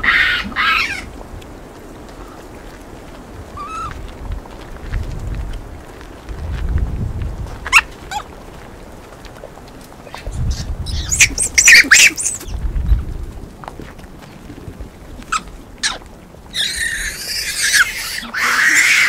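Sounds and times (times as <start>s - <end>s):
monkeys calling: 0.0s - 1.1s, 10.5s - 12.5s, 15.3s - 19.0s.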